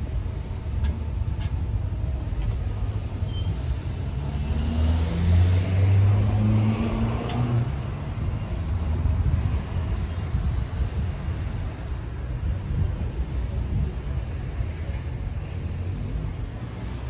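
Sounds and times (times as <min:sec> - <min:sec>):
low traffic rumble: 0:00.0 - 0:17.0
vehicle engine passing by: 0:04.1 - 0:08.3.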